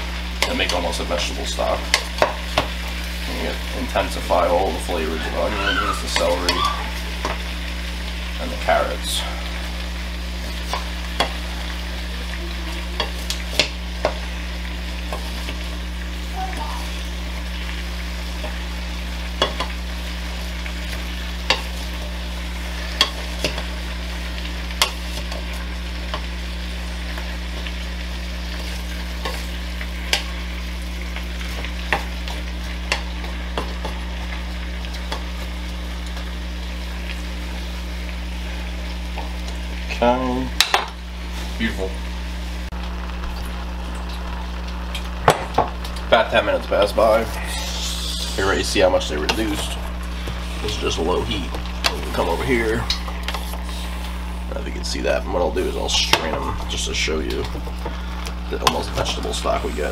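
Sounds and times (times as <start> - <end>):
constant low hum: 0.0 - 59.9
vegetables sizzling: 0.0 - 59.9.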